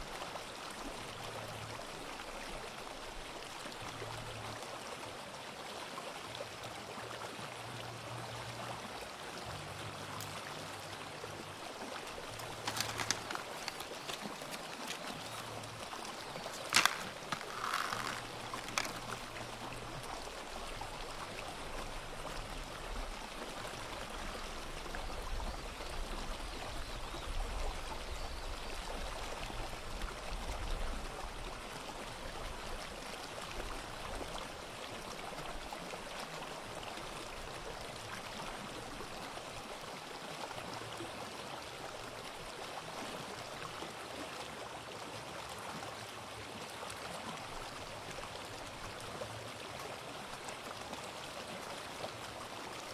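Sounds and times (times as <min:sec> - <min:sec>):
sea waves washing on shore: 0:11.8 - 0:19.8.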